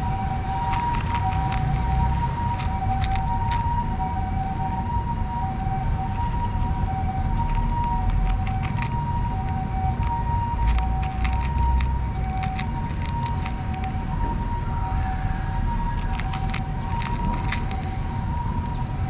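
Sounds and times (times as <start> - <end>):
two-tone siren: 0.0 - 19.0
cats crunching dry kibble: 0.2 - 3.6, 6.4 - 14.3, 15.8 - 18.8.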